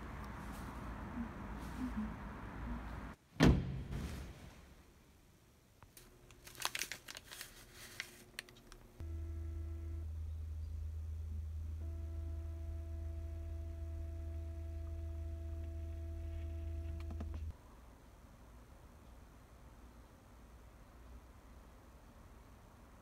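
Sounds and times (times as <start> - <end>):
light crinkling and clicking: 5.8 - 9.0
low hum with faint tone: 8.6 - 23.0.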